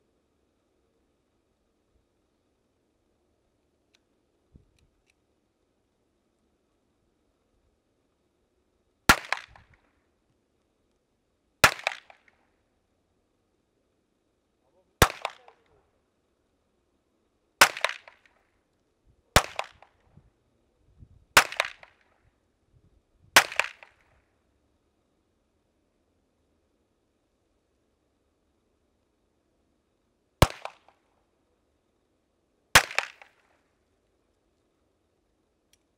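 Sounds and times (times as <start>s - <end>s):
gunshots with echo: 15.0s - 15.6s.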